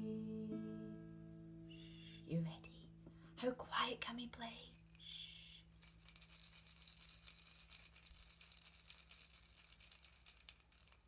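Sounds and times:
maraca rattling softly: 0:04.4 - 0:11.0.

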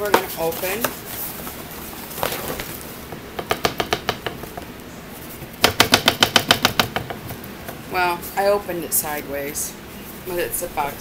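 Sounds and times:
cardboard box tearing: 0:02.0 - 0:02.8.

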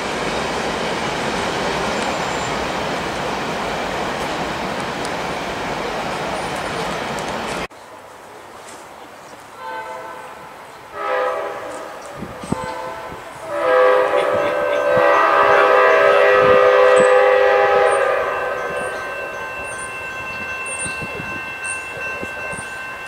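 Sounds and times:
locomotive horn blasts: 0:09.6 - 0:19.3.

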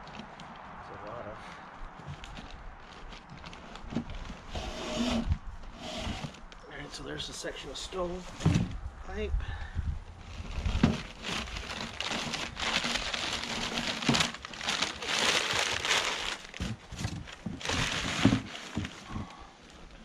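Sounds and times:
packing paper crumpling: 0:10.2 - 0:19.8.

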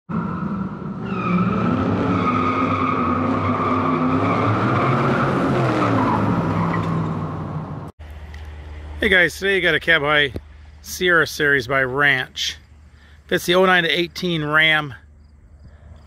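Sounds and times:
car tires screeching: 0:00.1 - 0:07.8.

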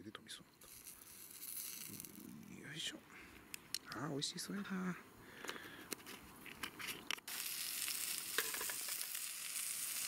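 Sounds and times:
skewers sizzling on a grill pan: 0:07.3 - 0:10.0.

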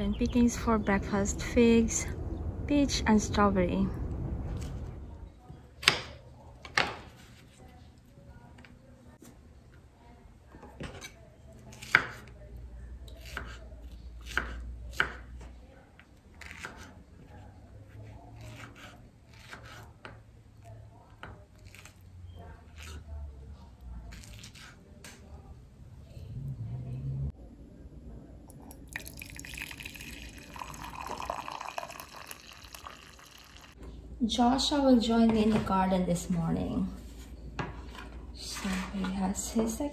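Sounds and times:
coffee pouring into mug: 0:28.5 - 0:33.8.

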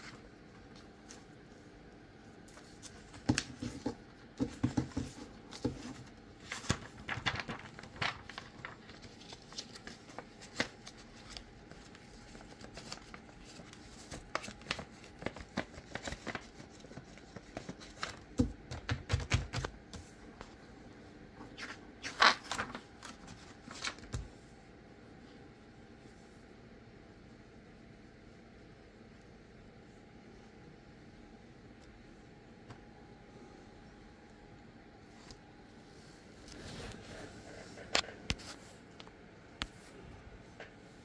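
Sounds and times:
paper rustling: 0:02.4 - 0:20.6, 0:21.5 - 0:24.3.

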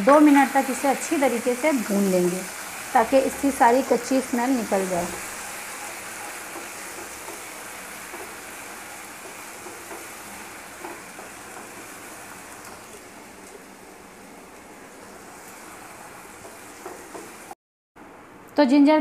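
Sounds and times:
onions sizzling in hot oil: 0:00.0 - 0:17.6
wooden spatula scraping a pan: 0:05.1 - 0:13.1, 0:15.1 - 0:17.5.

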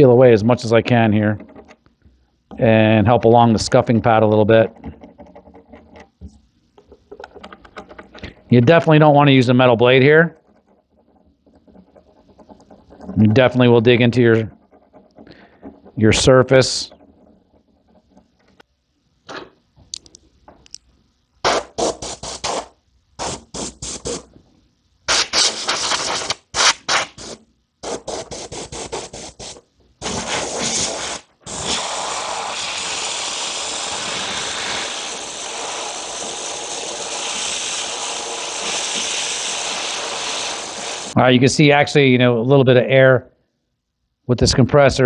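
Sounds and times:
plastic pick scratching: 0:09.9 - 0:18.6
compressed air blasts: 0:21.4 - 0:24.3, 0:25.1 - 0:41.2.

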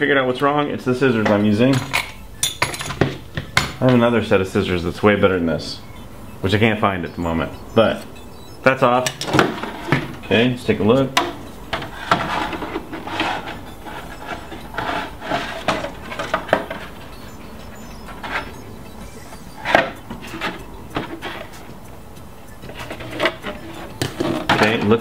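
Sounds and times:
plastic body rustling and scraping: 0:11.0 - 0:18.6, 0:22.7 - 0:25.0.

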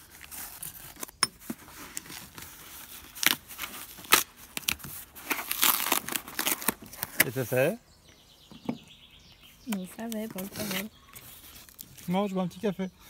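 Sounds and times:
cardboard crackling and rustling: 0:00.0 - 0:07.8, 0:10.0 - 0:12.3
cardboard tearing snaps: 0:03.1 - 0:07.4.

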